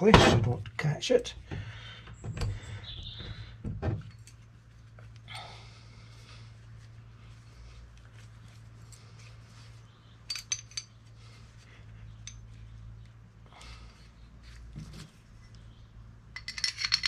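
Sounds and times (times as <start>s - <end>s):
steady low hum: 0.0s - 17.0s
metal parts handled: 10.2s - 11.1s, 16.3s - 17.0s.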